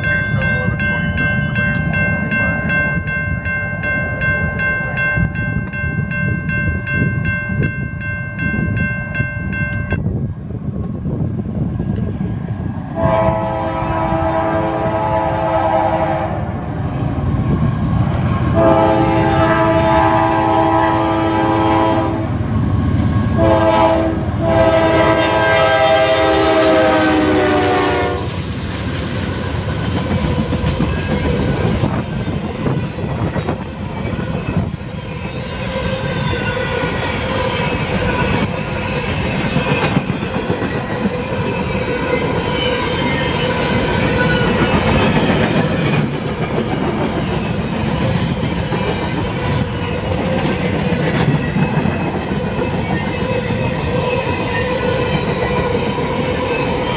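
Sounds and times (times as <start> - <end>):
locomotive horn blasts: 13.0 - 16.4, 18.6 - 22.4, 23.4 - 28.3
train wheels clacking over rail joints: 28.8 - 35.4, 36.4 - 56.9.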